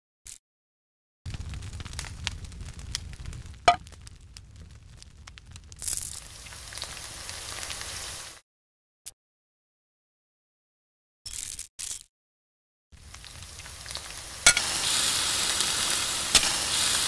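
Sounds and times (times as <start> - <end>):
fire pops: 1.3 - 8.1, 13.0 - 17.0
campfire crackling: 1.3 - 8.4, 13.0 - 17.0
oil sizzling in a frying pan: 5.8 - 8.4, 13.0 - 17.0.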